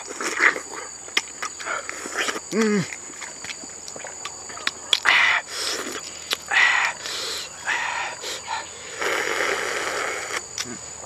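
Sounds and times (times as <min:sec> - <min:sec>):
wet chewing and lip-smacking: 0:00.0 - 0:10.8
high insect drone: 0:00.0 - 0:11.0.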